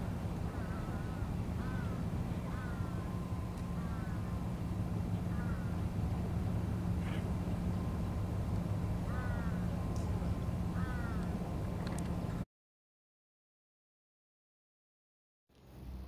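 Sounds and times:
bird calling: 0.0 - 12.4
steady low hum: 0.0 - 12.4.

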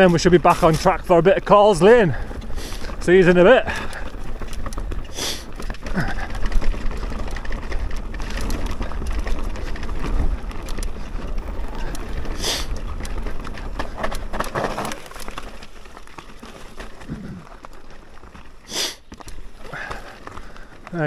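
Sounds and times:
bike rattling over bumps: 0.0 - 21.0
bike tyres rolling over stones: 0.0 - 21.0.

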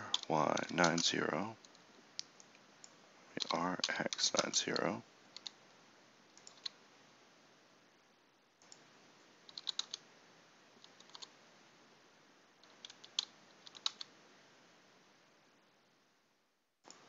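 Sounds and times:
faint steady hiss: 0.0 - 17.0
keyboard and mouse clicking: 0.1 - 2.6, 3.4 - 5.6, 6.4 - 6.8, 9.5 - 10.0, 10.8 - 11.3, 12.6 - 14.1.

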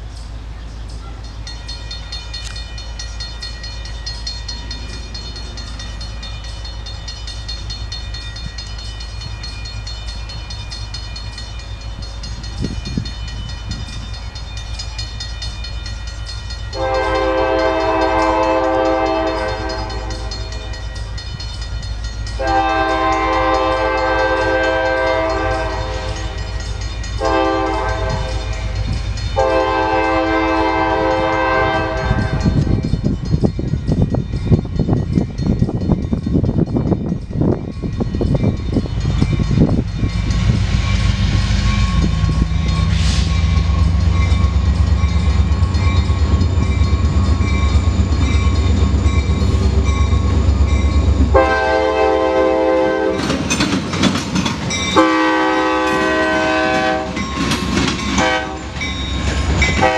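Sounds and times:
locomotive air horn blasts: 16.8 - 20.6, 22.4 - 26.4, 27.2 - 28.6, 29.4 - 32.7, 51.3 - 53.2, 55.0 - 57.2, 58.2 - 58.8.

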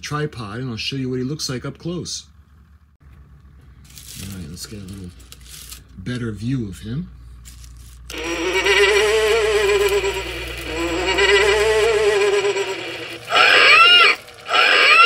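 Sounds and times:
electronic moaning tone: 8.1 - 15.0
swooping electronic calls: 8.1 - 15.0.

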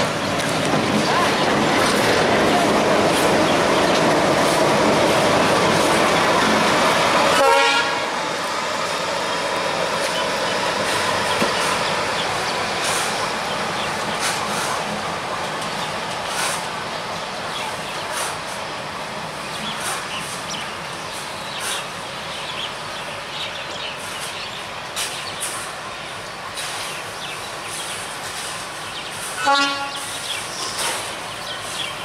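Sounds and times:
diesel locomotive engine: 0.0 - 32.0
locomotive horn toot: 7.3 - 8.1, 29.4 - 30.1.

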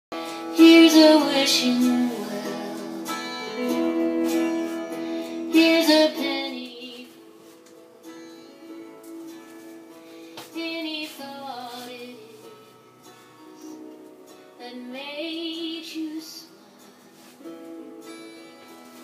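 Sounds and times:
guitar: 0.1 - 19.0
person singing long notes: 0.2 - 7.5.

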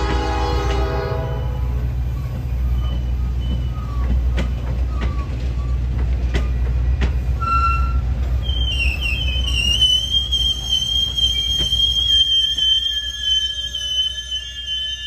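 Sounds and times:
train rumbling past: 0.0 - 15.0
high wheel squeal: 1.2 - 5.9, 7.4 - 15.0
wheels clicking over rail joints: 2.1 - 8.7.

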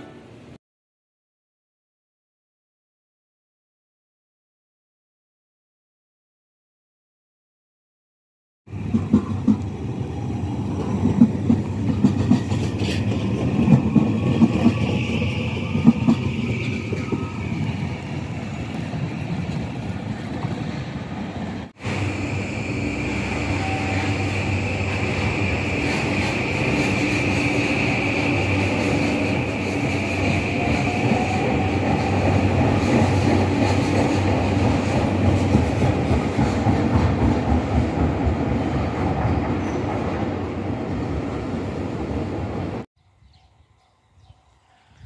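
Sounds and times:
electric train rumbling: 8.7 - 45.0
train motor whine: 21.8 - 29.0.

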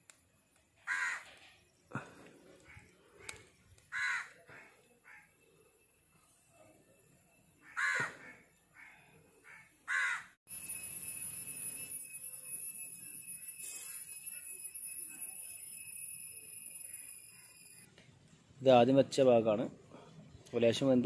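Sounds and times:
crows cawing: 0.8 - 5.4, 7.6 - 10.4
thin high whine: 10.5 - 18.1.

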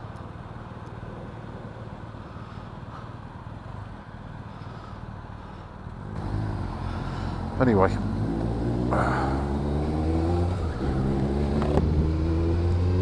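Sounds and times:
louder engine sound: 6.0 - 13.0.

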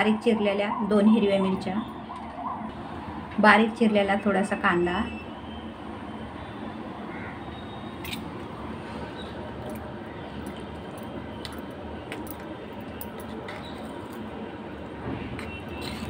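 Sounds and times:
steady background hum: 0.0 - 16.0.

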